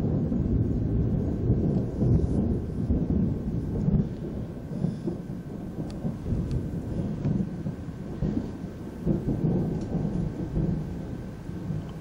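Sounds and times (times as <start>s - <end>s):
thunder rumbling: 0.0s - 12.0s.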